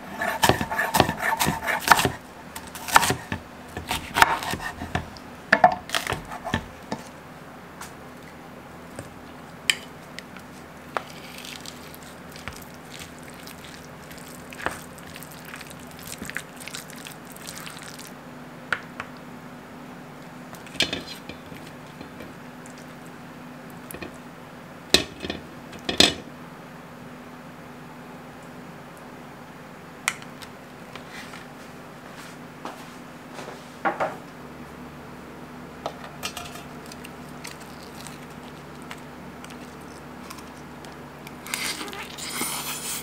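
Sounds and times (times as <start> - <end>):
spoon scraping bowl: 0.0 - 2.2
steady low hum: 0.0 - 43.0.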